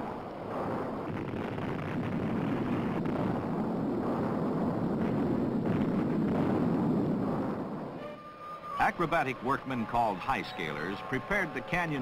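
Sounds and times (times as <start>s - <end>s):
explosion rumble: 0.0s - 8.0s.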